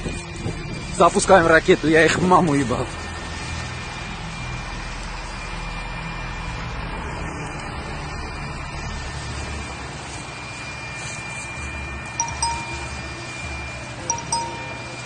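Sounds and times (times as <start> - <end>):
short high chime-like beeps: 12.2 - 13.3, 14.1 - 15.0.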